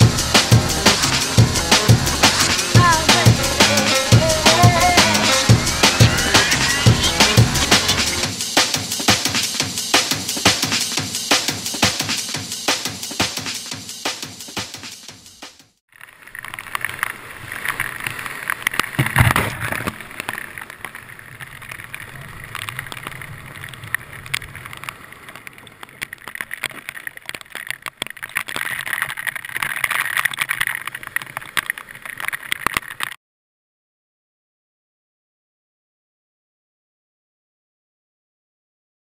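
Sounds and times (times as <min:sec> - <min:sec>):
rushing whitewater splashing: 0:00.0 - 0:09.4, 0:16.4 - 0:32.6
loud splash or thump: 0:19.0 - 0:20.0.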